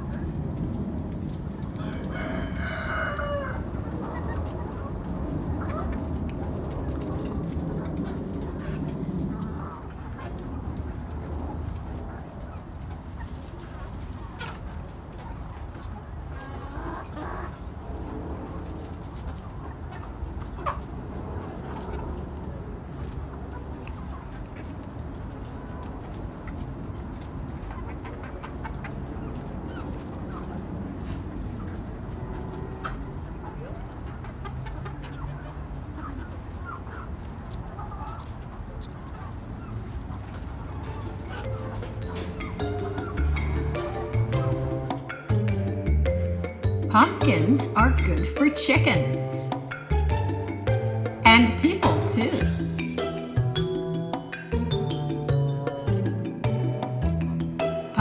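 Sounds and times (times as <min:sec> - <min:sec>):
chickens clucking: 0:00.0 - 0:58.0.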